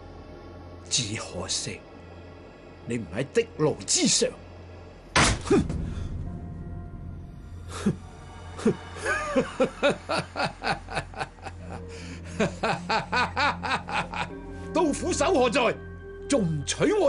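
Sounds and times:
background music: 0.0 - 17.0
man laughing: 8.6 - 14.4.

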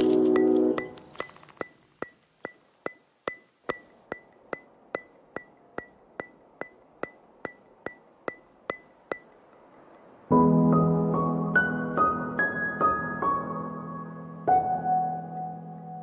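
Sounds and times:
ringing percussive tick: 1.6 - 10.1.

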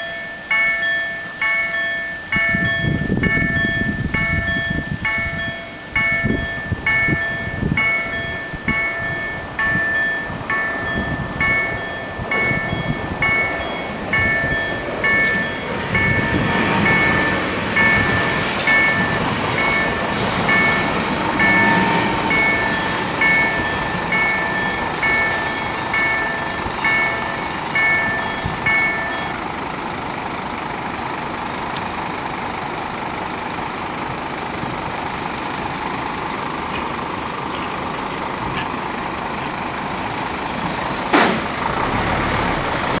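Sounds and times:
two-tone crossing bells ringing: 0.0 - 29.8
car driving over crossing: 6.2 - 43.0.

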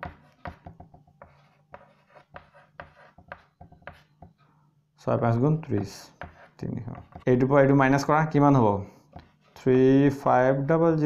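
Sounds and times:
chalk writing on blackboard: 0.0 - 4.4, 5.7 - 7.3, 9.1 - 9.7.

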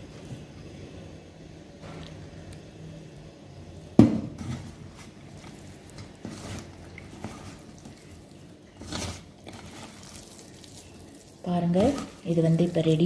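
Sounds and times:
hand squishing wet vegetables: 4.4 - 13.0.

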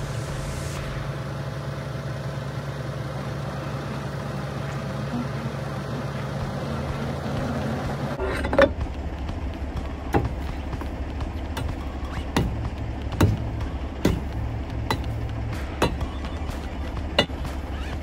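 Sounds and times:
diesel truck engine idling: 0.0 - 18.0
sharp knock on trailer: 10.0 - 17.7.

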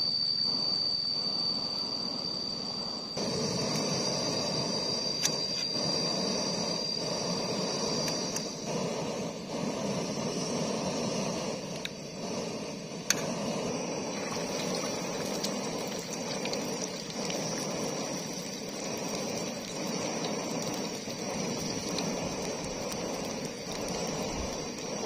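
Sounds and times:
hot oil sizzling and bubbling: 11.8 - 25.0.

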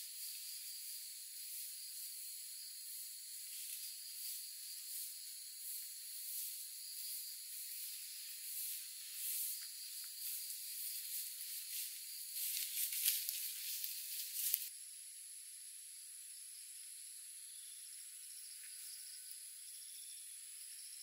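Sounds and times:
forest insects chirring: 0.0 - 21.0
footsteps swishing through grass: 7.6 - 14.7.

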